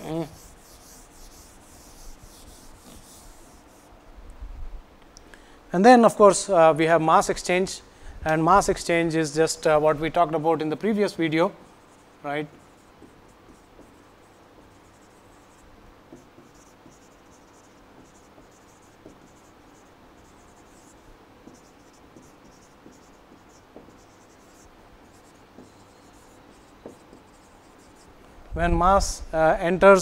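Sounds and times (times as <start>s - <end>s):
marker scratching on whiteboard: 0.0s - 3.9s, 11.8s - 28.2s.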